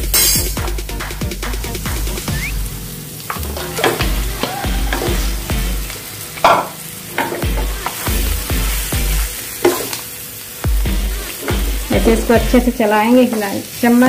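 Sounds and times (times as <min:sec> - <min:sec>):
light sizzle: 0:00.0 - 0:14.0
spatula scraping a frying pan: 0:03.3 - 0:05.5, 0:06.4 - 0:10.0, 0:10.9 - 0:12.7.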